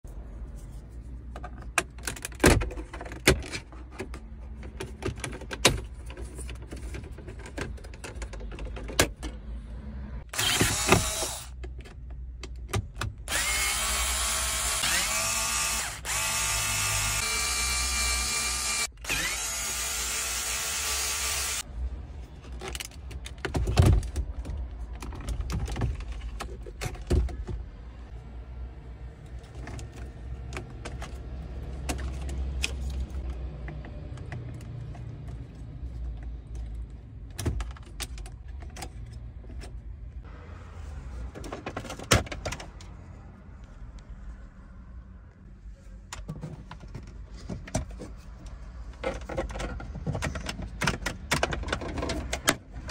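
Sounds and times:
cordless drill whining: 10.3 - 11.5, 13.3 - 21.6.

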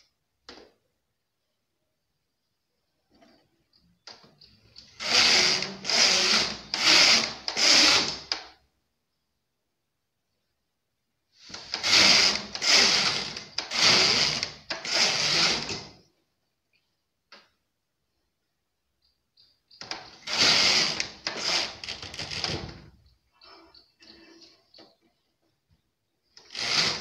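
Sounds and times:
knitting machine carriage sliding: 4.9 - 8.4, 11.4 - 16.0, 19.9 - 22.9, 26.4 - 27.0.

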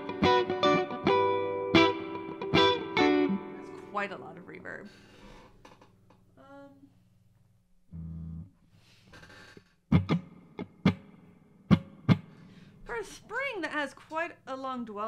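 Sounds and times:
electric guitar strums with reverb: 0.0 - 4.7, 9.9 - 12.5
amp hum: 0.0 - 13.9.

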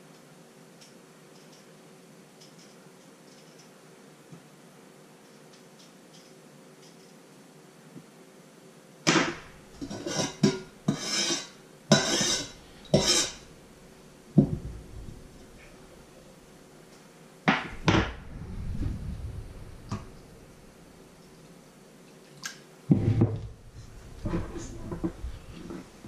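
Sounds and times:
metal spoon scraping enamel bowl: 9.8 - 13.5.

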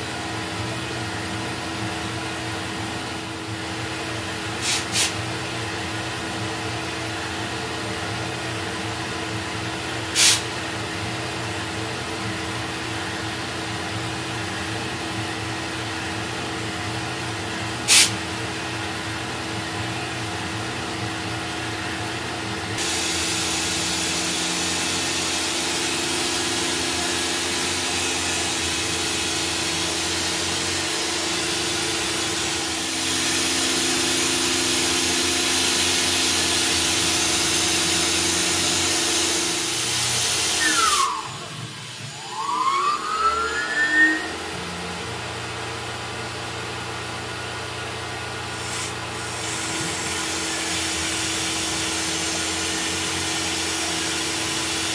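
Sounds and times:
compressed air blow gun hiss: 4.6 - 5.2, 10.1 - 10.5, 17.8 - 18.2, 22.8 - 42.2, 48.5 - 54.9
low machine tone: 5.2 - 53.8
milling machine humming: 18.4 - 46.1, 48.3 - 54.9.

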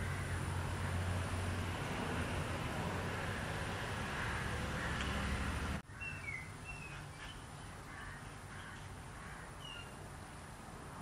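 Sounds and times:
birds chirping: 3.0 - 10.1.

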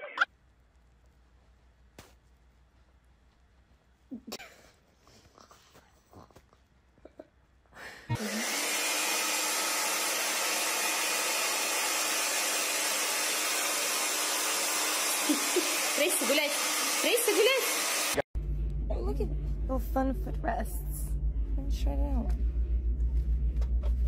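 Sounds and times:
pet grooming dryer blowing: 8.1 - 18.2.

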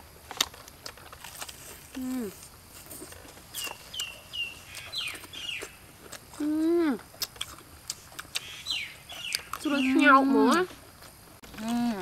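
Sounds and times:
crunchy chicken chewing: 0.0 - 12.0
bird chirping: 3.5 - 5.8, 8.4 - 10.2
person humming mm: 11.6 - 12.0.

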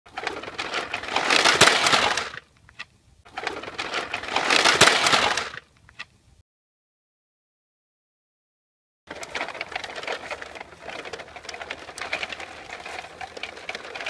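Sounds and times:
toy trucks scraping over sand: 0.1 - 2.5, 3.3 - 5.7, 9.1 - 14.0.

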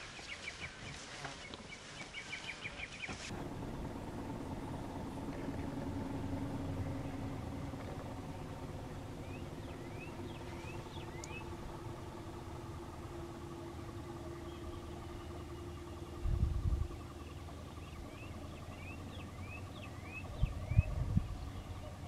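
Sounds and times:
bird chirping: 0.0 - 3.3, 6.7 - 12.6, 13.5 - 22.0
vehicle engine idling: 0.0 - 22.0.

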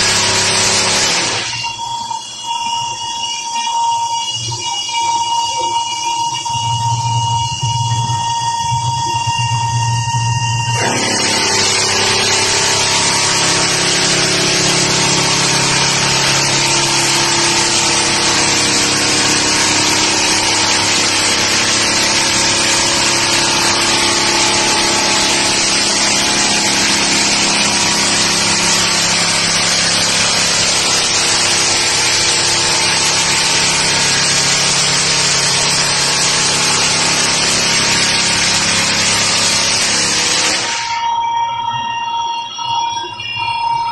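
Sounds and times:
motor hum: 0.0 - 3.1, 3.8 - 41.0
floor sander sanding hiss: 10.8 - 41.0.

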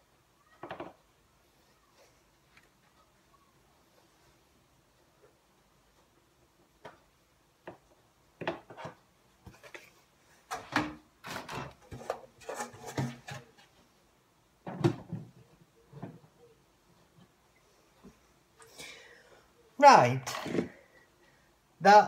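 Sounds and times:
plastic plant pots knocking and rattling: 0.6 - 1.0, 7.6 - 13.8, 14.6 - 16.3.

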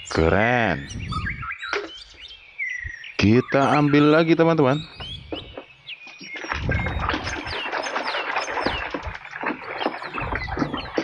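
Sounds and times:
birds chirping: 0.0 - 11.0
splashing and rubbing in water: 5.4 - 11.0.

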